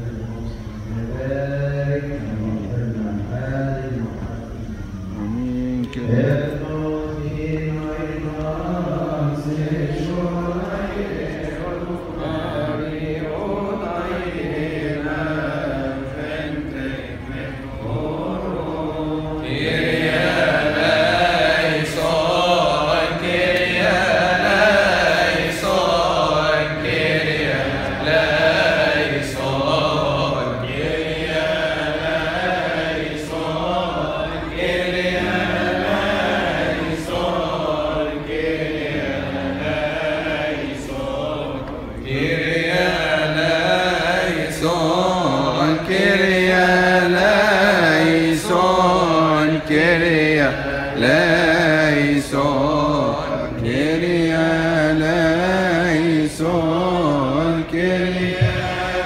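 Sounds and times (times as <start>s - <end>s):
men chanting in unison: 0.0s - 59.0s.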